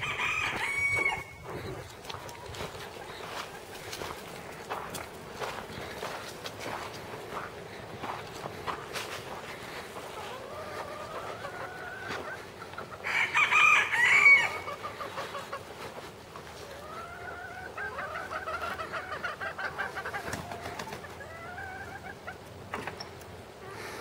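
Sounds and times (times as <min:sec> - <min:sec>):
rooster crowing: 0:00.0 - 0:01.4, 0:13.0 - 0:14.8
hens clucking: 0:00.0 - 0:24.0.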